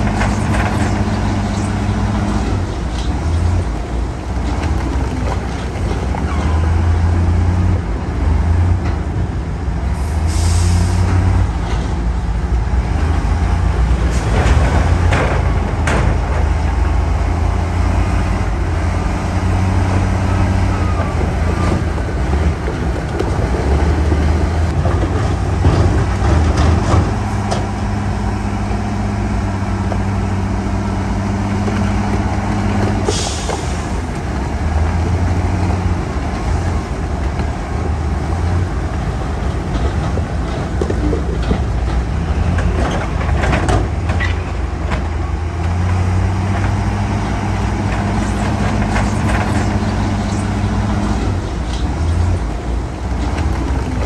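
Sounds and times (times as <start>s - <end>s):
heavy diesel engines running: 0.0s - 54.0s
air brake hiss: 10.0s - 11.1s.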